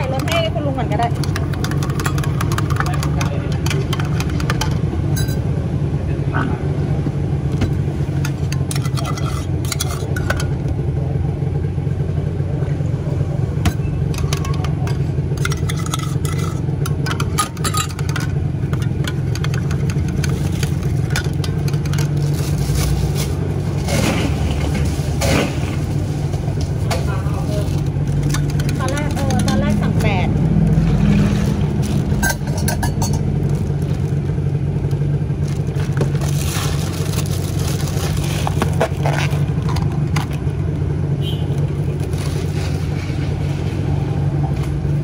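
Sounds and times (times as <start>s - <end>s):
spoons clinking against metal cups: 0.0s - 5.4s, 8.2s - 10.5s, 13.7s - 22.2s, 31.9s - 33.3s
low mechanical hum: 0.0s - 45.0s.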